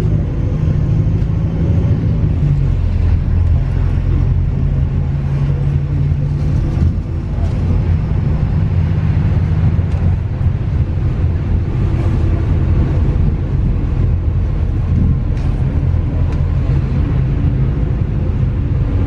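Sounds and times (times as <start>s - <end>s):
bus engine and road rumble: 0.0s - 19.0s.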